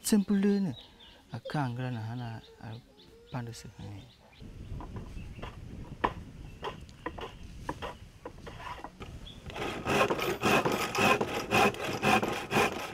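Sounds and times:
hand saw cutting wood: 7.7 - 12.9.

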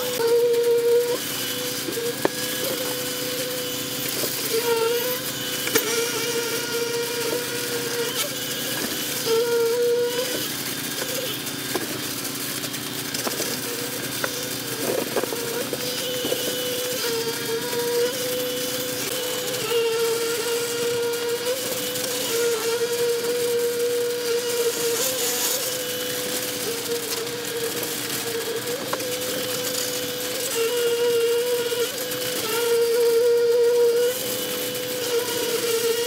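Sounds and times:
concrete pump running: 0.0 - 36.0
concrete vibrator whine: 0.0 - 36.0.

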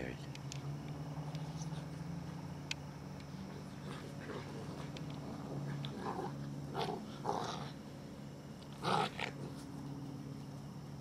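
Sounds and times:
puppies growling and yipping: 3.4 - 7.9, 8.7 - 9.6.

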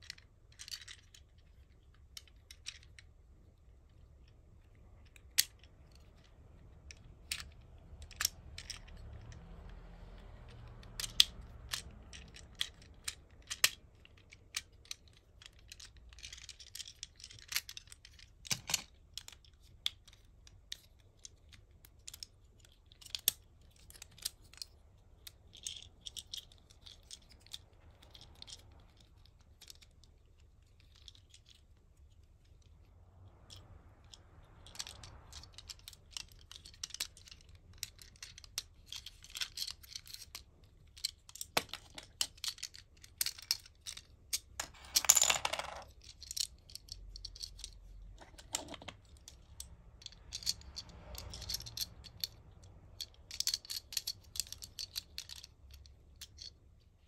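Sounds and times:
plastic toy joints clicking: 4.9 - 30.0, 45.8 - 56.5
plastic parts scraping: 40.9 - 50.5.

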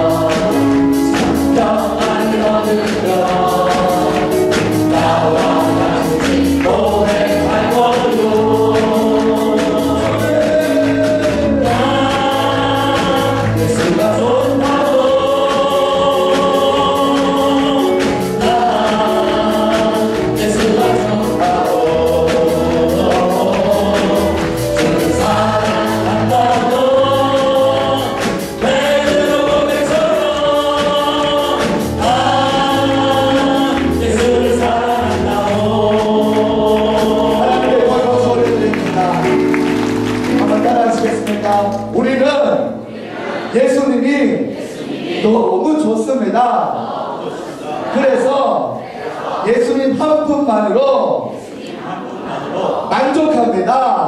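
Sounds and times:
man singing into a microphone: 0.0 - 39.4
band playing a steady beat: 0.0 - 42.9
many voices singing together: 0.0 - 54.0.

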